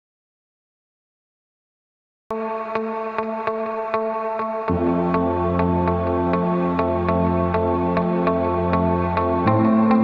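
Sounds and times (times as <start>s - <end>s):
background music with held chords: 2.3s - 10.0s.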